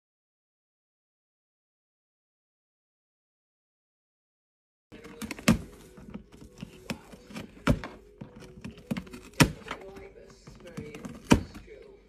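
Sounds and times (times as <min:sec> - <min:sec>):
cat clawing cardboard: 0:05.0 - 0:11.8.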